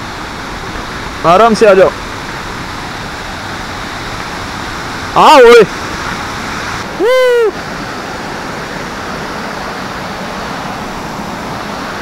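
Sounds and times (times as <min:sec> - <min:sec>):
waterfall over rocks: 0:00.0 - 0:12.0
person shouting: 0:07.0 - 0:07.6.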